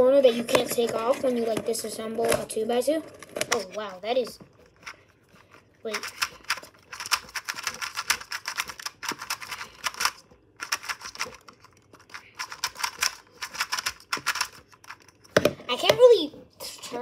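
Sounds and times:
speed cube clicking: 5.9 - 15.0.

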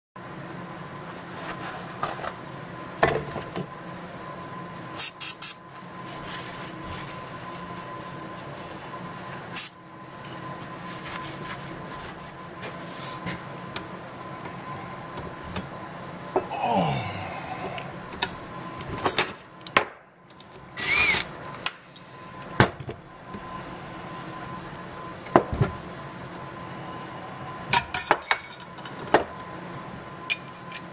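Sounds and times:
faint steady hum: 0.2 - 30.9.

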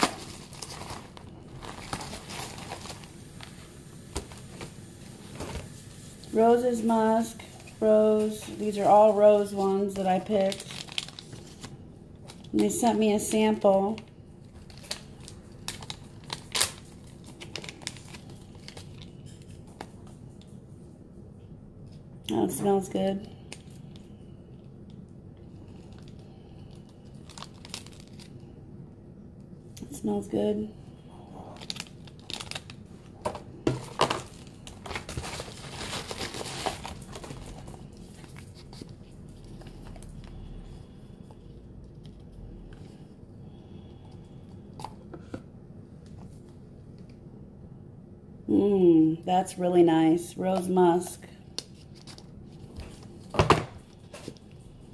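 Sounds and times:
paper packet crinkling and tearing: 0.0 - 5.4, 7.7 - 20.0, 25.7 - 28.4, 31.4 - 32.8, 33.7 - 40.4, 51.6 - 53.2.

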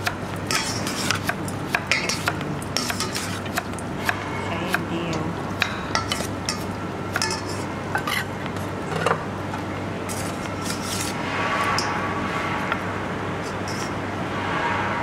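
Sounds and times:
metal spoon scraping steel bowl: 0.5 - 3.5, 10.1 - 12.1, 13.4 - 14.0.

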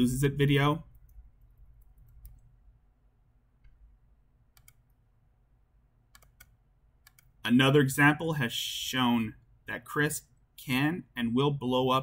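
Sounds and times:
computer mouse clicks: 0.9 - 2.5, 4.5 - 5.0, 6.1 - 7.4.

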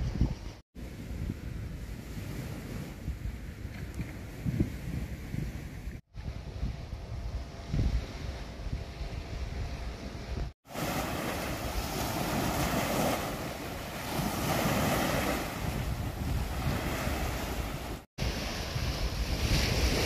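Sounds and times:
wind rumbling on microphone: 0.0 - 20.0
waves washing onto beach: 10.6 - 20.0.

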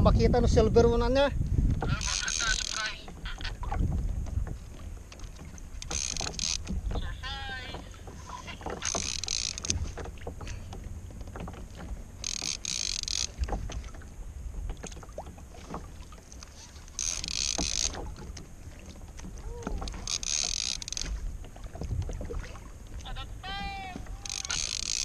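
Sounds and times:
low wind rumble on microphone: 0.0 - 8.6, 20.8 - 24.2
fishing reel whirring: 5.8 - 6.7, 8.6 - 9.8, 12.2 - 13.5, 16.8 - 18.0, 19.7 - 21.1, 24.2 - 25.0.

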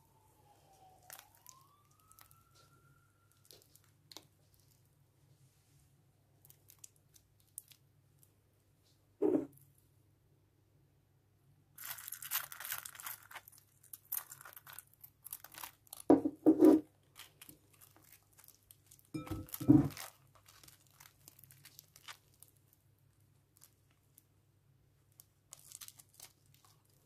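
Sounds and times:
slime squelching: 0.4 - 4.9, 11.8 - 16.1, 17.0 - 24.4, 25.0 - 27.0
slime crackling and tearing: 1.0 - 2.7, 3.3 - 4.8, 6.4 - 7.8, 11.8 - 16.1, 17.0 - 24.3, 25.0 - 27.0.

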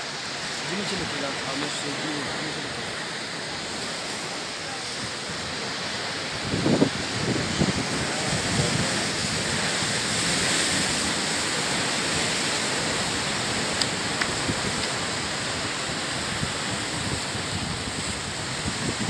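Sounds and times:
sea waves breaking on rocks: 0.0 - 19.0.

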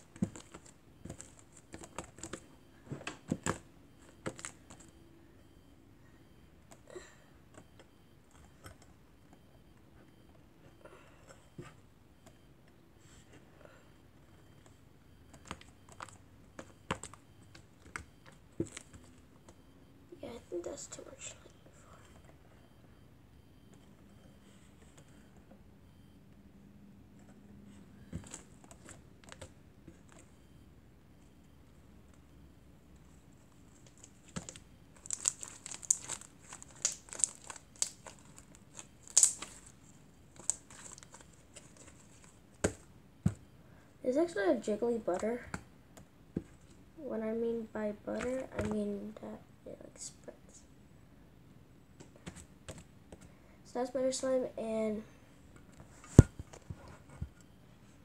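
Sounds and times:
slime crackling and popping: 33.8 - 42.3
sticky slime clicks and pops: 34.4 - 38.0, 39.0 - 39.6.

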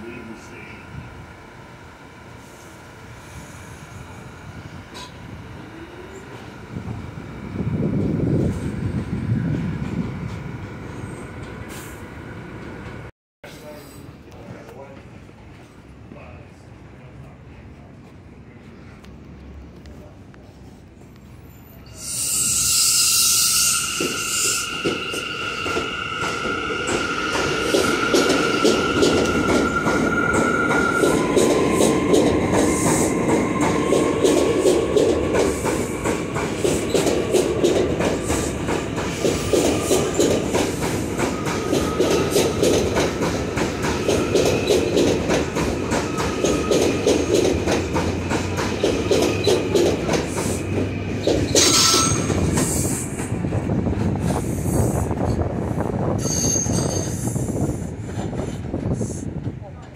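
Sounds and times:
train wheel-on-rail rumble: 0.0 - 59.9
rail joint clicks: 4.8 - 5.3, 9.4 - 13.1, 23.8 - 59.9
train wheel screech: 21.4 - 53.2, 54.2 - 59.3
wheel squeal: 21.5 - 31.4, 51.5 - 52.5, 56.2 - 57.4.

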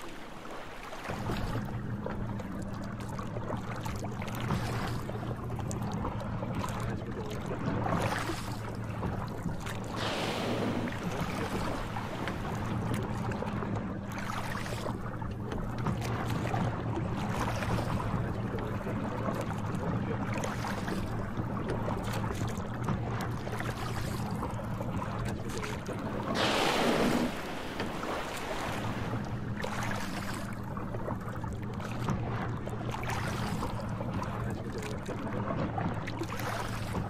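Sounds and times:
boat engine humming: 0.0 - 37.0
water noise: 0.0 - 37.0
rushing wind: 10.0 - 13.5, 26.0 - 29.6.

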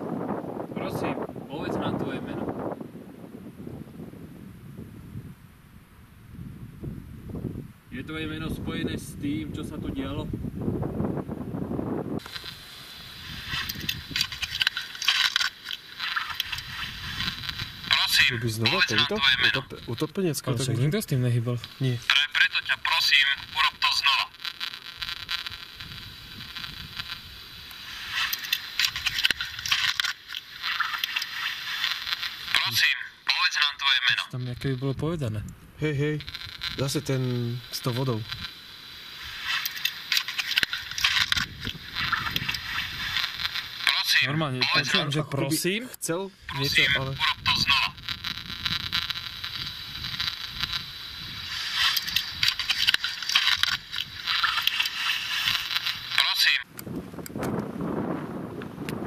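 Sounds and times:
speaker hiss and crackle: 0.0 - 59.0
sharp clicks: 12.2 - 12.6, 13.3 - 18.2, 24.3 - 32.7, 39.2 - 44.1, 48.0 - 57.6
clicks and rustling: 13.5 - 17.3, 51.7 - 56.0.

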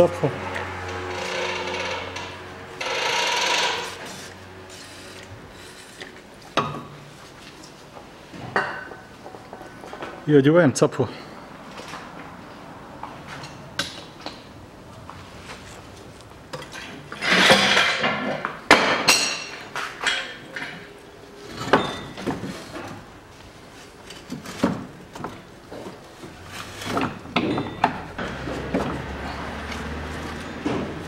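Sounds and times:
metal scraping: 0.6 - 6.1
metal clinks and knocks: 26.7 - 31.0.

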